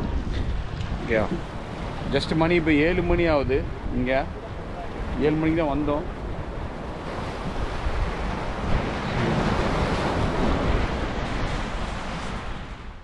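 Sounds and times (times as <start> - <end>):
waves splashing against rocks: 0.0 - 13.0
wind buffeting microphone: 0.0 - 13.0.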